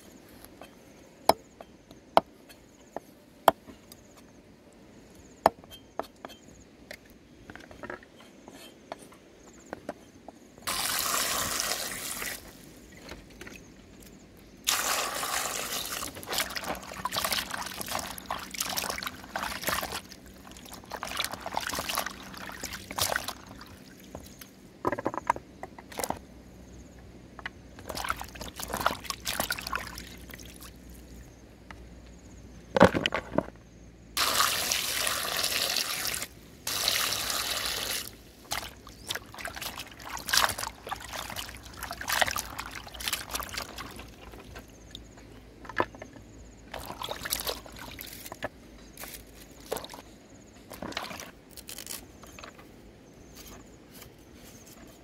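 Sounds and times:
water pouring into plastic basin: 10.7s - 12.6s, 14.7s - 24.0s, 27.9s - 30.7s, 34.2s - 44.4s, 46.7s - 48.1s
hands sloshing in water: 15.8s - 24.1s, 38.0s - 44.4s, 46.7s - 48.1s.

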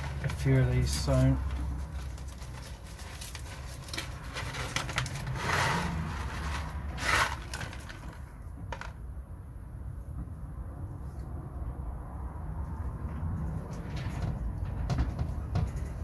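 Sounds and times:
paper packet crinkling: 0.0s - 9.0s.

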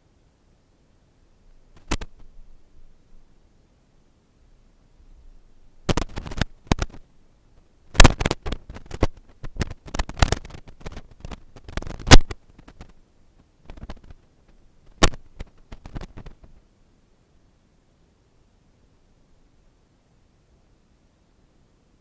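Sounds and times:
sharp clicks and knocks: 1.7s - 2.3s, 5.9s - 7.0s, 7.9s - 13.0s, 13.6s - 16.6s.

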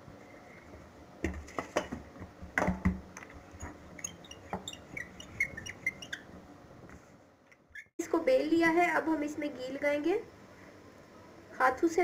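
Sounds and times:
rolling pin on stone countertop: 1.2s - 6.4s.

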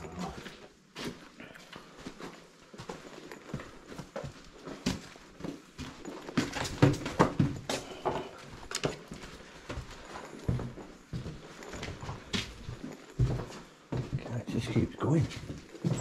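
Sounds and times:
footsteps on debris: 15.2s - 16.0s.

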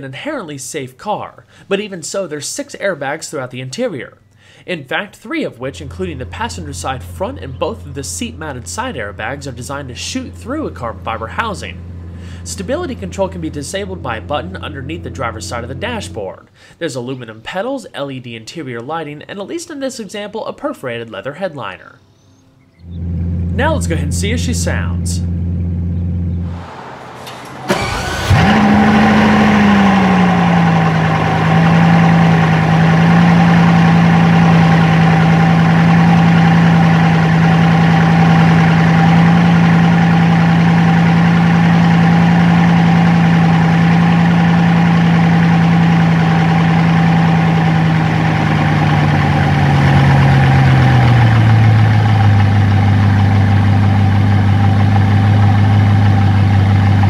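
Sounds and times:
car engine starting and idling: 5.4s - 16.5s, 22.8s - 57.0s.

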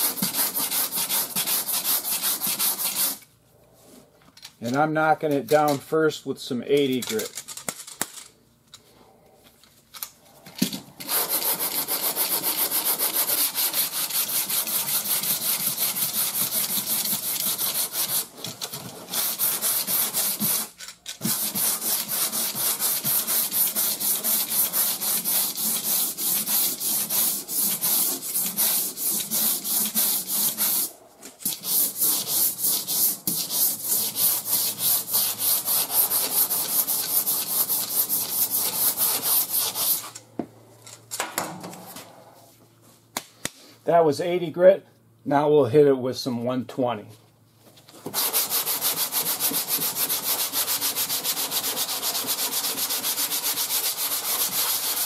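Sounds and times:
sandpaper rubbing on car panel: 0.0s - 3.2s, 11.0s - 40.1s, 48.1s - 55.0s.

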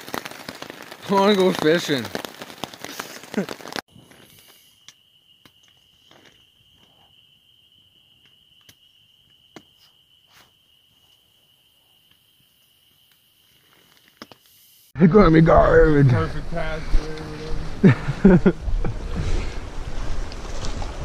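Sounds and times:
insect trilling: 0.0s - 14.9s.

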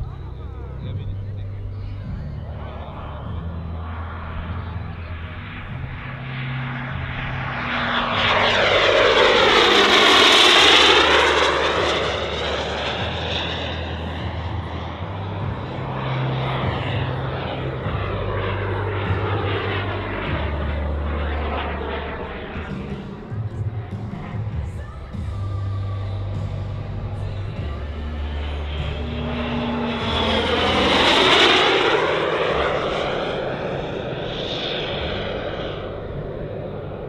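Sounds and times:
model jet turbine rush and whine: 0.0s - 37.0s.

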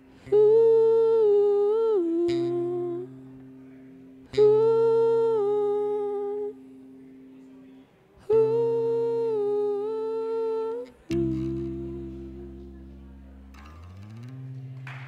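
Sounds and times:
long held notes: 0.0s - 15.0s
steady low drone: 11.1s - 15.0s.

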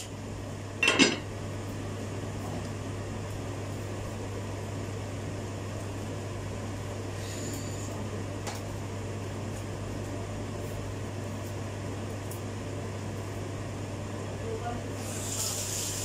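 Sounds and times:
low electrical hum: 0.0s - 16.0s
hiss: 15.0s - 16.0s.

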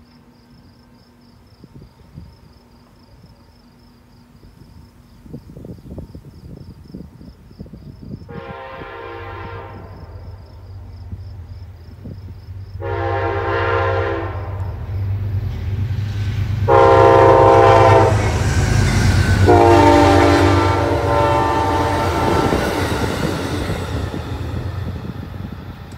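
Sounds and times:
rush of passing train: 0.2s - 25.9s
diesel locomotive rumble: 0.5s - 25.9s
train horn chord blasts: 8.3s - 10.4s, 12.8s - 14.8s, 16.6s - 23.8s.

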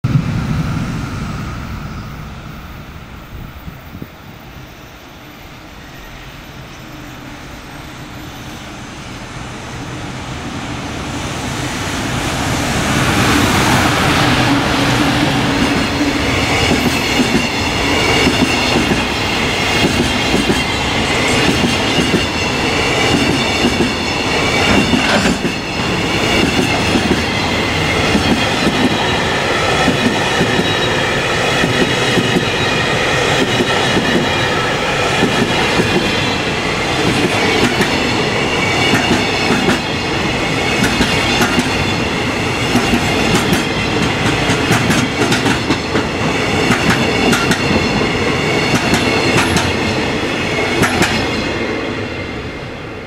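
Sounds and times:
freight train rumble: 0.0s - 53.0s
high ringing of wheels on rail: 0.0s - 53.0s
wheels clacking over rail joints: 42.6s - 48.0s.

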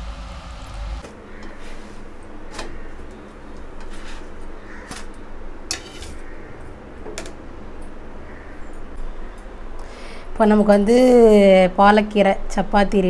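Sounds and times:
spatula clicking and scraping pan: 5.7s - 6.2s.

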